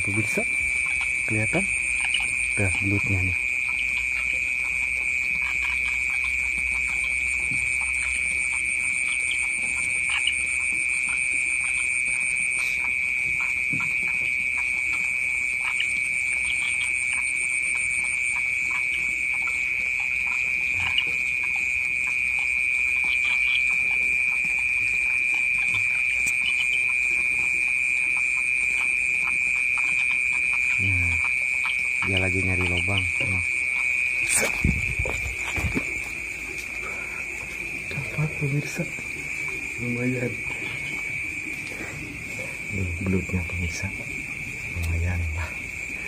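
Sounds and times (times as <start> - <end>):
crickets trilling: 0.0 - 46.0
higher pulsing chirr: 0.0 - 46.0
faint ticks: 44.8 - 45.5.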